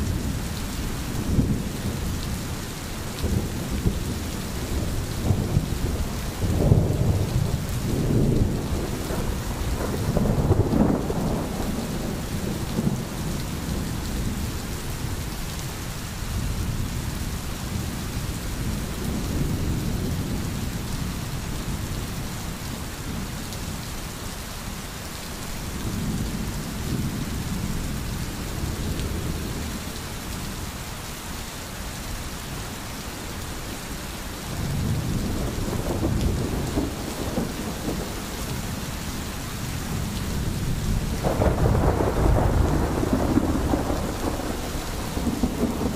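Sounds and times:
steady rain: 0:00.0 - 0:45.9
rolling thunder: 0:03.2 - 0:14.5, 0:34.6 - 0:38.8, 0:39.8 - 0:45.9.

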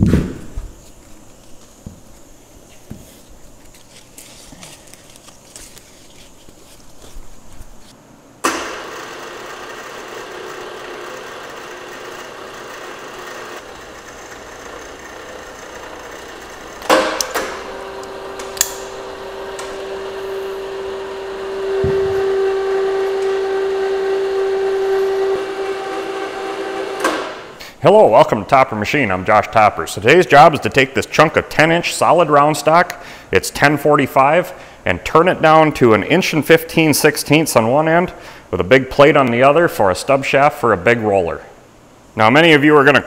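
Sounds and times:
steady machine hum: 0:00.0 - 0:43.0
chain hoist motor whine: 0:08.6 - 0:27.6.

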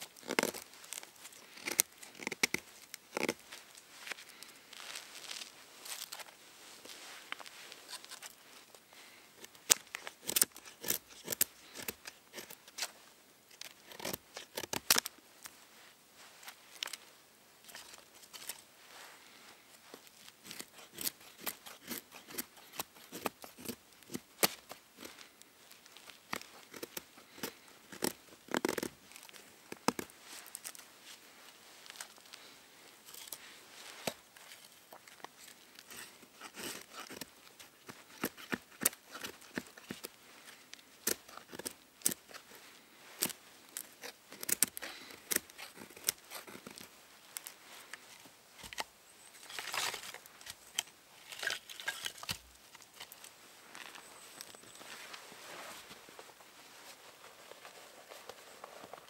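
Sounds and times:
knife scraping wood: 0:00.1 - 0:03.4, 0:07.9 - 0:08.4, 0:09.4 - 0:12.9, 0:13.5 - 0:15.0, 0:20.4 - 0:25.4, 0:26.3 - 0:30.8, 0:33.0 - 0:54.8.

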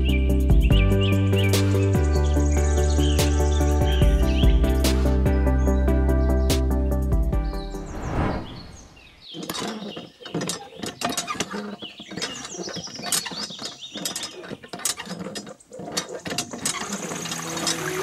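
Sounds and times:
short high squeaks: 0:08.6 - 0:18.0
small mechanical clicks and rattles: 0:09.4 - 0:18.0.

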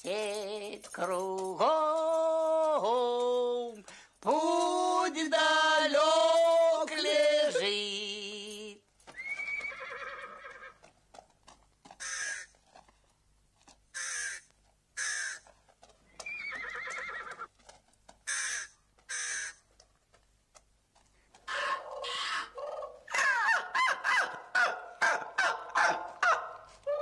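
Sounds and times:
crows cawing: 0:12.0 - 0:12.5, 0:14.0 - 0:15.5, 0:18.2 - 0:19.6, 0:21.5 - 0:26.6.

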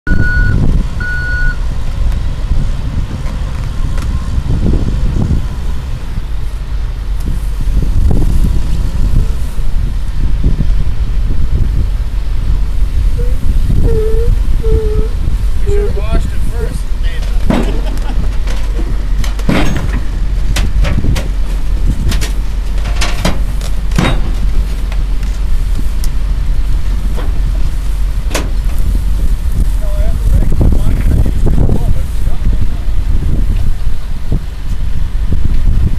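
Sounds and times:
low diesel engine rumble: 0:00.0 - 0:35.9
excavator travel alarm beeps: 0:00.1 - 0:01.7
steel tracks clanking: 0:15.4 - 0:29.8.

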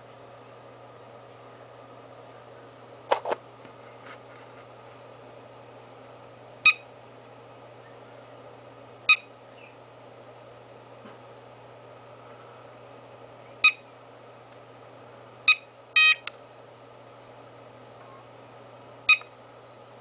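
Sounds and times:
battery charger beeping: 0:15.5 - 0:16.3, 0:19.1 - 0:19.3.

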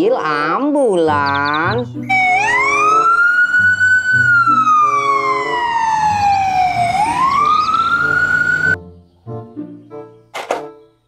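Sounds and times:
ambulance siren wailing: 0:01.2 - 0:08.8.

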